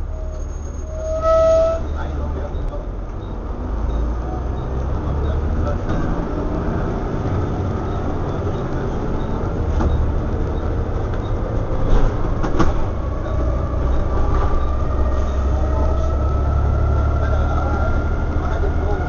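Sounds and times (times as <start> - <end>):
bus engine drone: 0.0 - 19.0
sharp knocks from bus body: 11.9 - 12.9.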